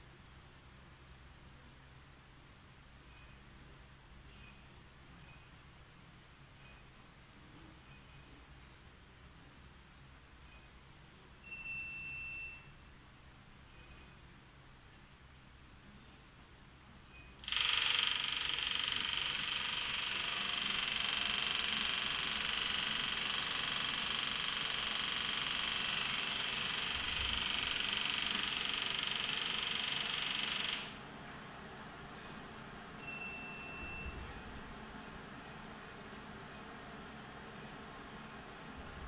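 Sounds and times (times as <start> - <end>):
short beep: 11.5 - 12.7, 33.0 - 36.6
machine loud steady hiss: 17.4 - 31.0.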